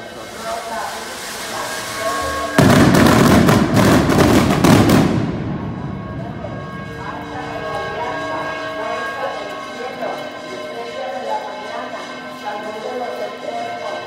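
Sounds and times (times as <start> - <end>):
fireworks cracking and banging: 0.9 - 6.9.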